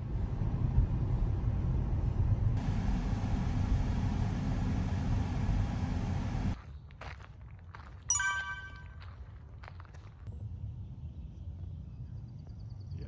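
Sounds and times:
road and tyre rumble in car: 0.0s - 6.6s.

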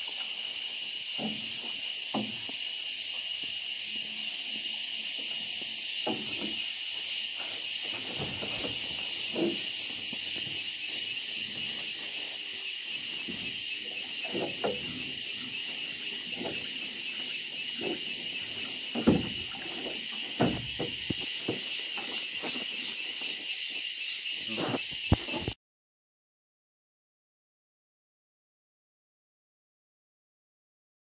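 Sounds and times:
steady high hiss: 0.0s - 25.5s
net knocking and rustling on hull: 7.9s - 10.7s, 17.8s - 21.7s.

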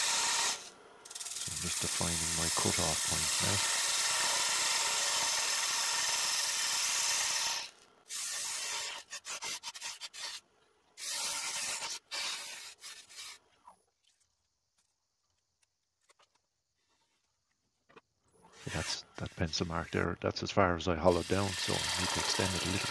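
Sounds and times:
lathe tool scraping wood: 0.0s - 10.4s, 18.5s - 20.1s, 21.0s - 22.9s.

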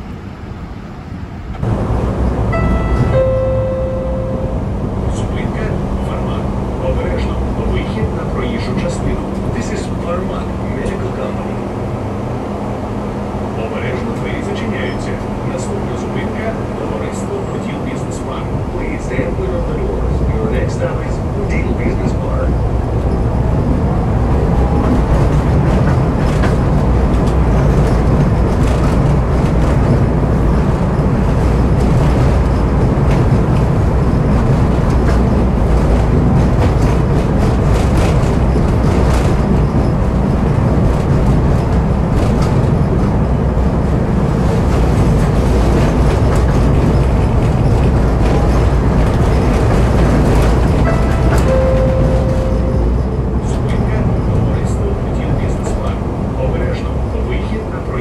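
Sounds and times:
tram wheels rumbling on rails: 0.0s - 58.0s
short steady tone: 2.5s - 4.8s, 50.9s - 52.9s.

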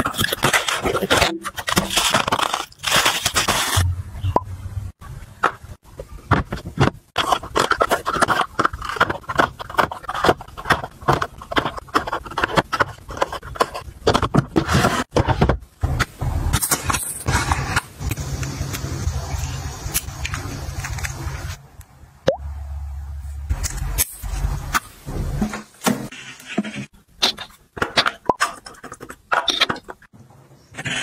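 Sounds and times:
cardboard boxes tapping and scraping: 5.5s - 16.0s.

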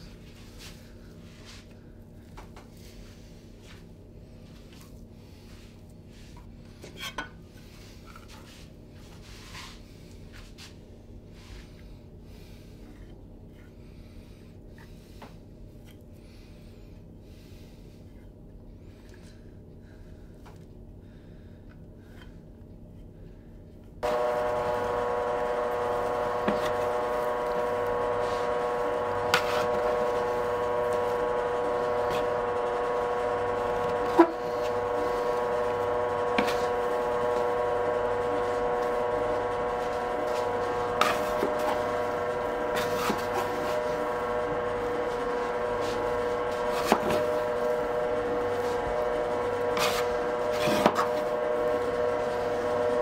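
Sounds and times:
steady pitched drone: 24.0s - 53.0s.

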